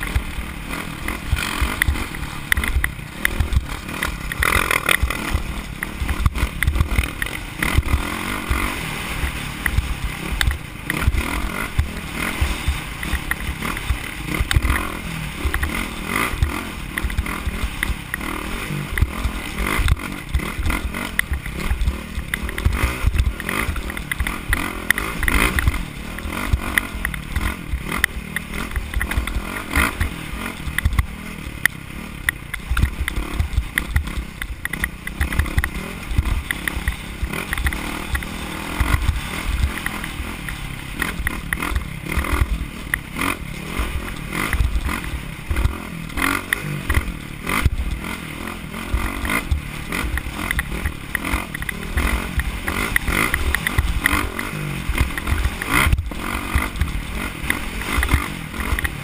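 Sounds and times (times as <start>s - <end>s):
motorcycle engine at speed: 0.0s - 59.0s
knocks and clatter: 18.8s - 59.0s.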